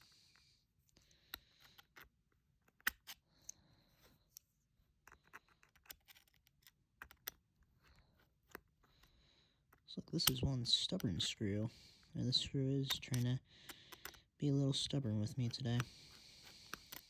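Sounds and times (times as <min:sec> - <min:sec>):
screwdriver clicking and scraping: 0:00.9 - 0:03.6, 0:04.3 - 0:09.1, 0:12.8 - 0:14.3, 0:16.6 - 0:17.0.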